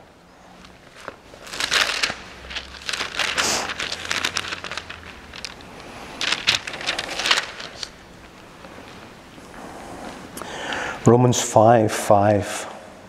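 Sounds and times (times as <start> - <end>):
thin pages rustling: 0.4 - 10.4.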